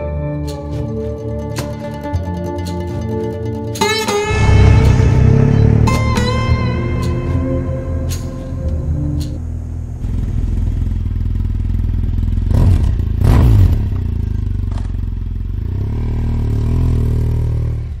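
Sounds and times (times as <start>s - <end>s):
motorcycles riding past: 4.2s - 18.0s.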